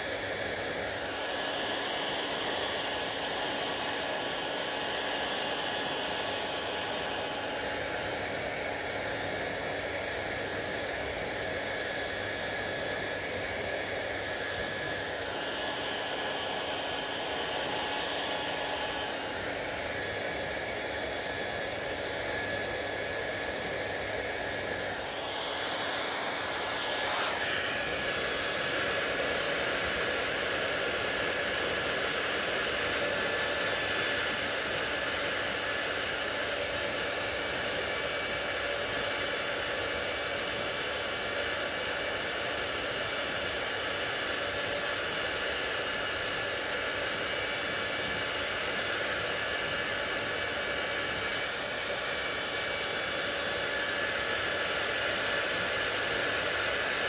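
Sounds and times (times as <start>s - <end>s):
hair dryer running: 0.0s - 57.0s.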